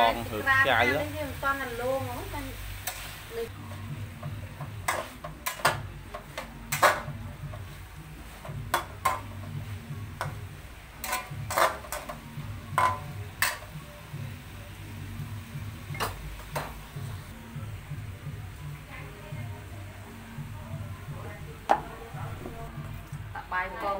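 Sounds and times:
metal utensils clinking on dishes: 0:11.0 - 0:12.2, 0:12.8 - 0:13.7.

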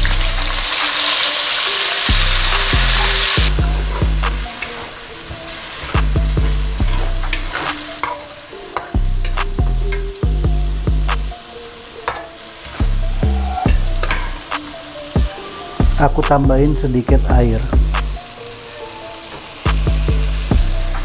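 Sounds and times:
food sizzling in hot oil: 0:00.0 - 0:17.0, 0:17.6 - 0:21.0
metal spatula scraping pan: 0:02.0 - 0:10.1, 0:12.0 - 0:14.5.

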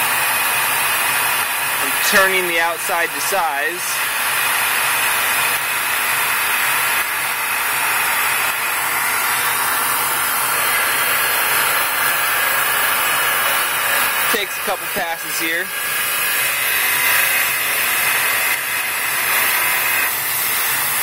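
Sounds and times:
lathe turning metal: 0:00.0 - 0:21.0
air and oil-mist hiss: 0:00.8 - 0:04.5, 0:08.2 - 0:21.0.

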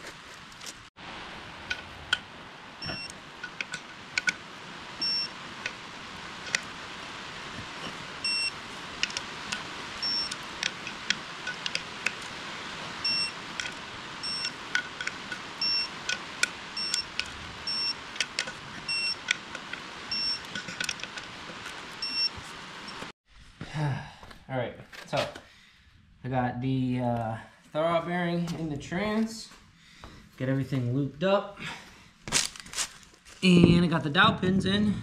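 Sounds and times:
torque wrench beeps: 0:02.8 - 0:03.1, 0:05.0 - 0:05.3, 0:08.2 - 0:08.6, 0:10.0 - 0:10.4, 0:13.0 - 0:13.4, 0:14.2 - 0:14.6, 0:15.6 - 0:16.0, 0:16.8 - 0:18.0, 0:18.9 - 0:19.2, 0:20.1 - 0:20.5, 0:22.0 - 0:22.3.

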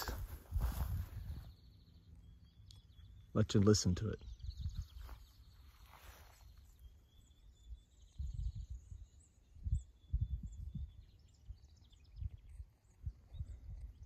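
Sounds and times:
wind buffeting microphone: 0:00.0 - 0:01.8, 0:04.2 - 0:05.4, 0:07.2 - 0:14.0
faint bird chirps and trills: 0:00.0 - 0:14.0.

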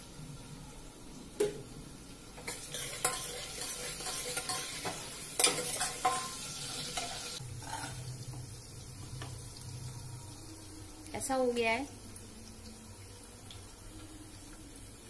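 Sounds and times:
onions sizzling in oil: 0:01.1 - 0:15.0
spatula scraping pans: 0:02.4 - 0:08.1
low steady hum: 0:07.4 - 0:15.0.

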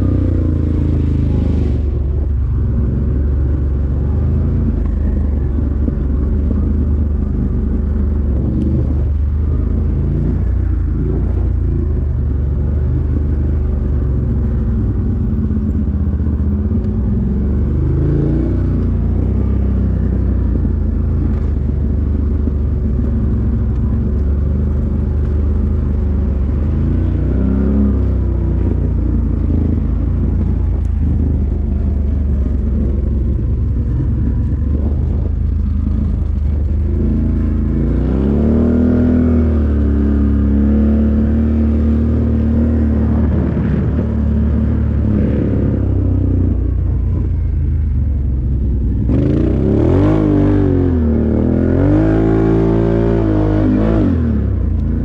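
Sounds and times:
engine revving: 0:24.4 - 0:47.4, 0:48.6 - 0:55.0.

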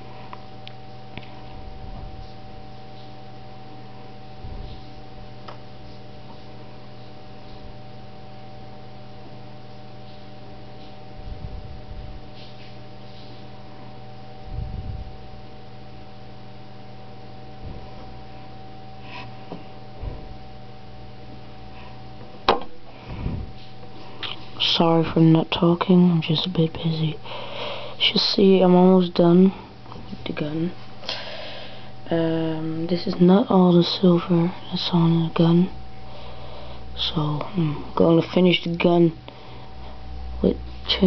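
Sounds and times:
electrical hum: 0:00.0 - 0:41.0
soft low thumps: 0:01.6 - 0:02.4, 0:04.4 - 0:05.3, 0:11.2 - 0:12.3, 0:14.4 - 0:15.2, 0:17.6 - 0:18.1, 0:19.9 - 0:20.4, 0:22.5 - 0:23.6.

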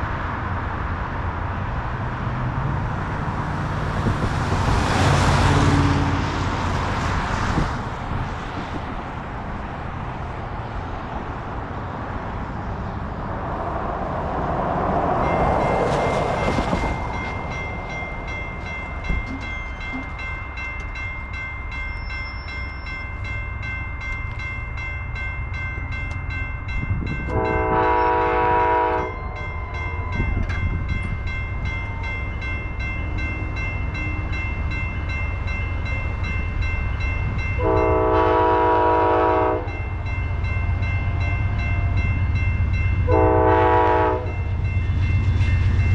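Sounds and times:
car passing: 0:00.0 - 0:19.5
low train rumble: 0:00.0 - 0:45.9
crossing warning bells ringing: 0:14.2 - 0:45.9
train air horn blasts: 0:27.3 - 0:29.4, 0:37.6 - 0:39.8, 0:43.0 - 0:44.4.

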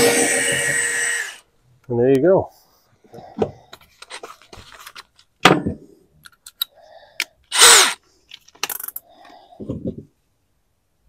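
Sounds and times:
tools clicking and knocking: 0:08.3 - 0:09.0.

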